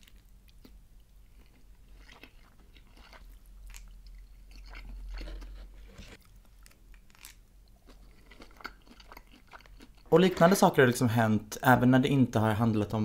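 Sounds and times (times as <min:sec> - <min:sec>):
person chewing sushi: 0:00.0 - 0:10.1
small crunches: 0:01.4 - 0:10.0.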